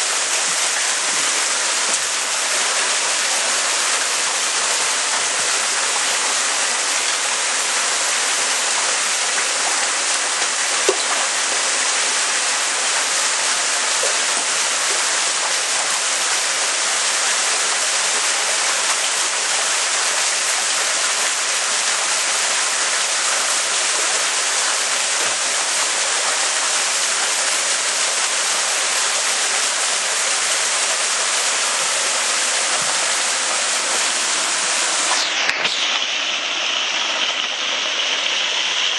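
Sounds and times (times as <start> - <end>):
water splashing into a tank: 0.0 - 38.9.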